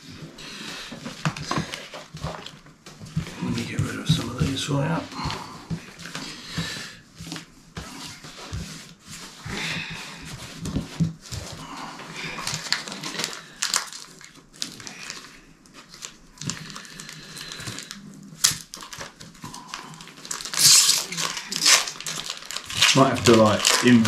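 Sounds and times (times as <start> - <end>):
foil wrappers crinkling: 9.8 - 24.0.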